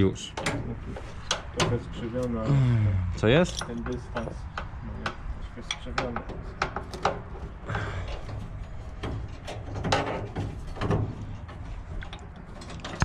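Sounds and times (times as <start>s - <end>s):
spanner clinking on metal: 3.4s - 4.7s.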